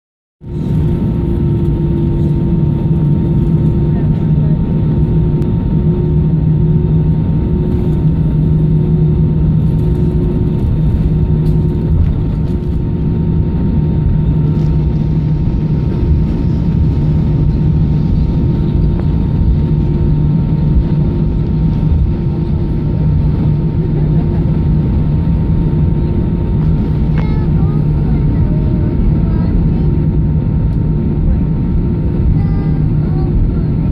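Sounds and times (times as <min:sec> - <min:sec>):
jet engines droning: 0:00.4 - 0:33.9
low hum: 0:00.4 - 0:33.9.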